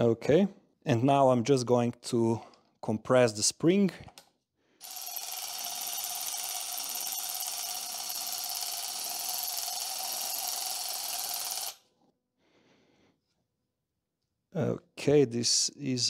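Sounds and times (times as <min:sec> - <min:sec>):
cordless electric ratchet running: 0:04.8 - 0:11.8.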